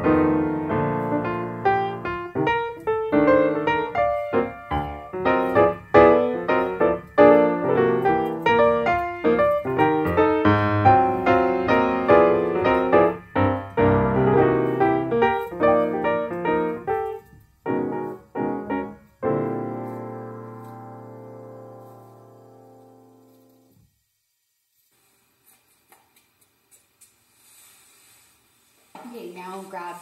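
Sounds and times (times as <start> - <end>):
solo piano music: 0.0 - 23.8.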